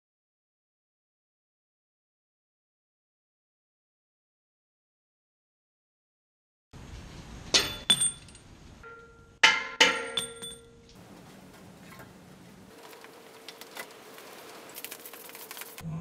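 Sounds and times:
hand tools clanking against metal: 7.5s - 13.0s.

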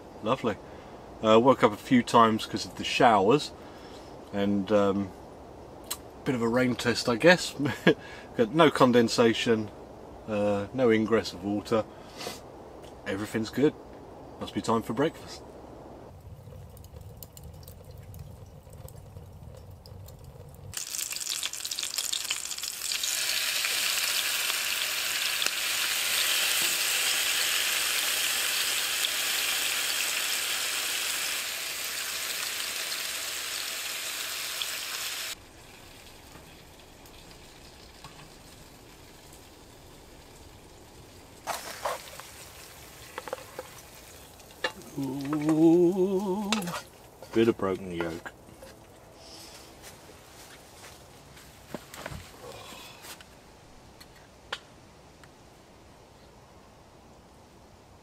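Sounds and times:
meat sizzling in a frying pan: 20.7s - 46.7s
wooden spatula scraping a pan: 41.5s - 42.4s, 46.5s - 48.8s.

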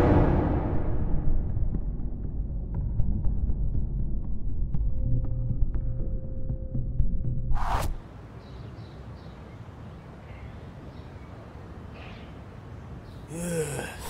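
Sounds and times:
short loud hit: 0.0s - 1.6s
outdoor street ambience: 0.0s - 14.0s.

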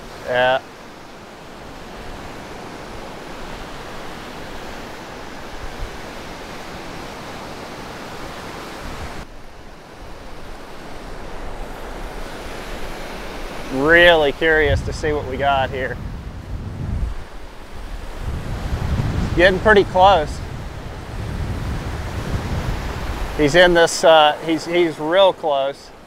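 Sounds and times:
surf breaking on beach: 0.0s - 26.0s
wind on microphone: 1.8s - 23.8s.

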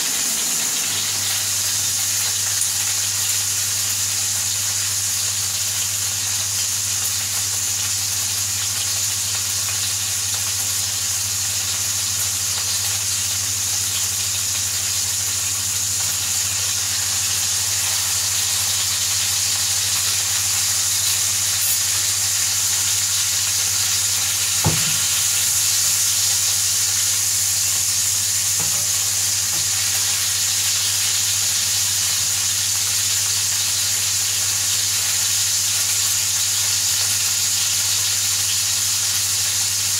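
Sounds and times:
burger patties sizzling in pan: 0.0s - 39.9s
sharp knock: 24.6s - 25.1s.

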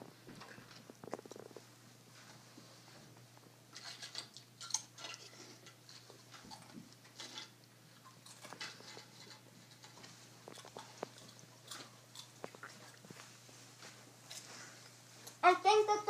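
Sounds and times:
person eating with fingers: 10.4s - 13.4s.

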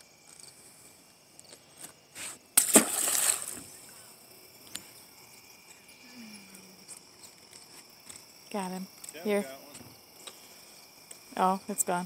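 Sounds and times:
fish splashing into water: 2.6s - 3.7s.

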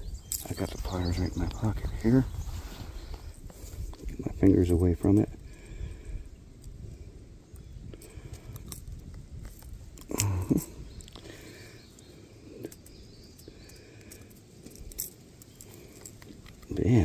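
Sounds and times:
pliers clicking and scraping: 8.0s - 11.2s, 12.6s - 16.9s
low grunt: 10.0s - 10.8s.

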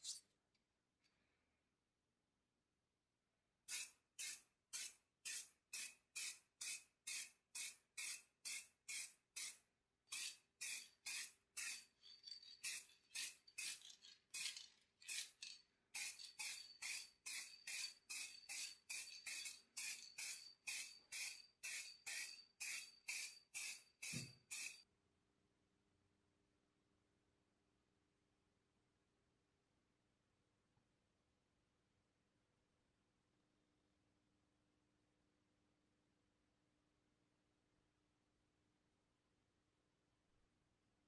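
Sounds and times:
spray paint can hissing bursts: 3.7s - 11.8s, 16.0s - 24.8s.

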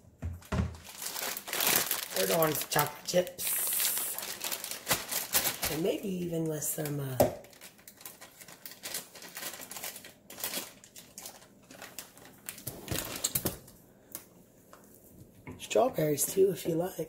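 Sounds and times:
plastic bag crinkling: 0.6s - 13.8s.

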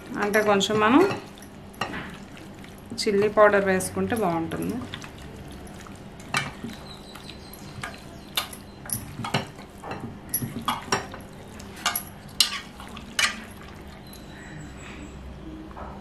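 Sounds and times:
hands squelching raw chicken: 0.0s - 3.6s, 4.4s - 14.5s
clinks against metal pot: 6.2s - 14.3s.

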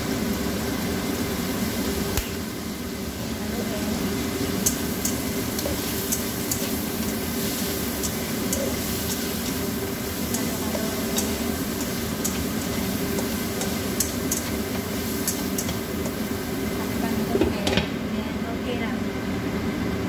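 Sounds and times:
food sizzling in a frying pan: 0.0s - 17.7s
spatula clicking and scraping pan: 4.6s - 16.2s.

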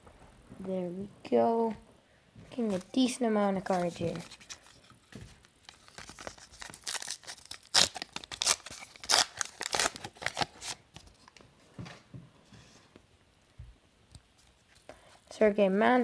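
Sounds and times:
foil wrapper tearing: 5.6s - 10.8s.

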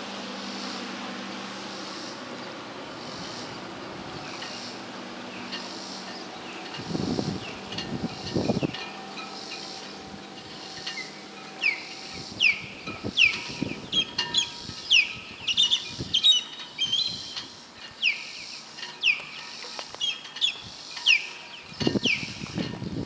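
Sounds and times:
wind rumble: 0.0s - 18.1s, 20.0s - 23.0s
other birds chirping: 1.6s - 23.0s
bird whistled chirps: 11.0s - 17.4s.

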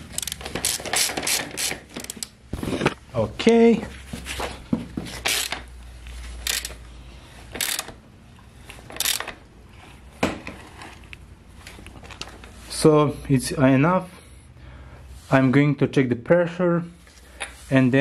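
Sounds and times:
socket ratchet clicking: 0.1s - 2.4s, 5.2s - 5.6s, 6.4s - 6.8s, 7.5s - 8.0s, 8.9s - 9.4s.

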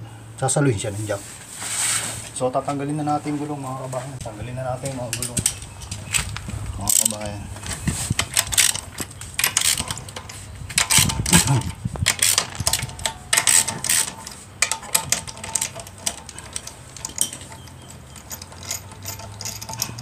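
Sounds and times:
metal clinking: 5.1s - 20.0s
hand ratchet clicking: 6.8s - 20.0s.

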